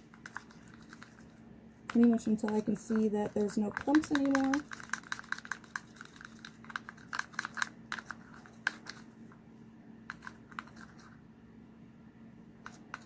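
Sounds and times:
faint steady hum: 0.0s - 13.0s
wooden stick scraping plastic cup: 0.1s - 1.3s, 1.9s - 9.0s, 10.1s - 11.1s.

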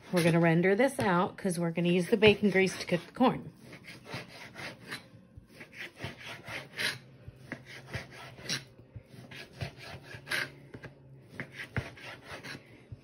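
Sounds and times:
knife scraping plastic cutting board: 0.0s - 1.1s, 2.1s - 12.6s
knife sawing through bacon: 2.0s - 10.6s, 11.3s - 12.7s.

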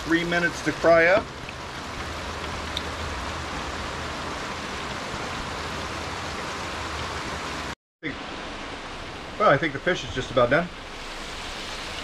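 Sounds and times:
fish sizzling in deep fryer: 10.8s - 12.0s.

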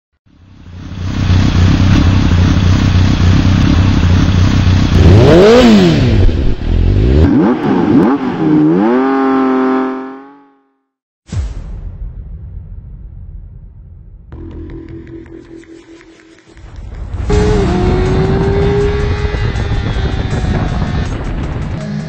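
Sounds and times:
motorcycle engine revving: 0.4s - 10.7s, 16.6s - 22.0s.

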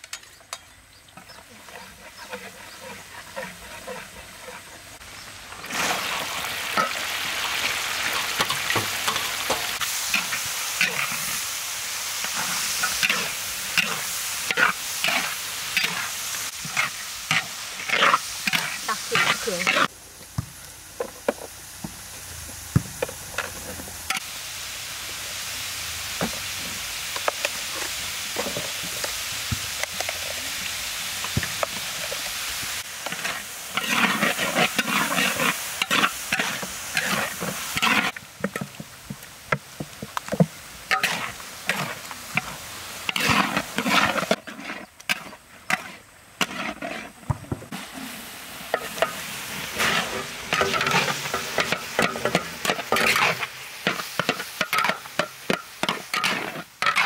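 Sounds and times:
vegetables sizzling in oil: 0.0s - 57.0s
metal spatula scraping a wok: 1.2s - 5.0s, 8.0s - 11.6s, 12.2s - 19.9s, 33.0s - 38.7s, 40.9s - 47.2s, 47.8s - 57.0s.

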